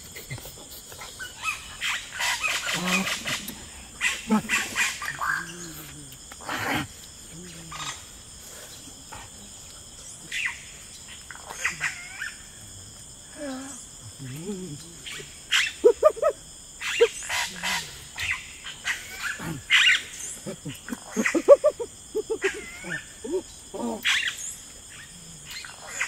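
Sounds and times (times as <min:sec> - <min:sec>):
people making animal-like cries: 0:13.3 - 0:18.1, 0:19.1 - 0:24.2.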